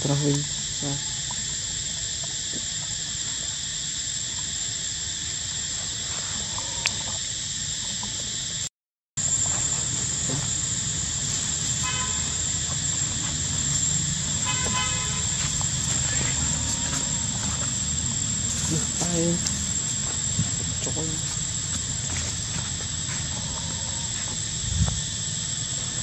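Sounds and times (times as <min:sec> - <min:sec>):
high-pitched insect drone: 0:00.0 - 0:26.0
short horn-like toot: 0:11.8 - 0:12.4, 0:14.4 - 0:15.4.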